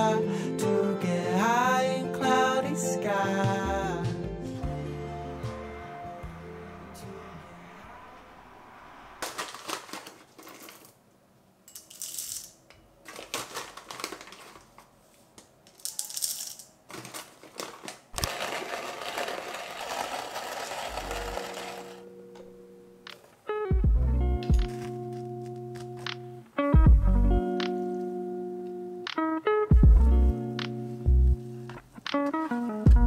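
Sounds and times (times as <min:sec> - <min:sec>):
coffee grinder crushing beans: 0:09.2 - 0:10.9, 0:13.1 - 0:14.8, 0:15.8 - 0:22.1.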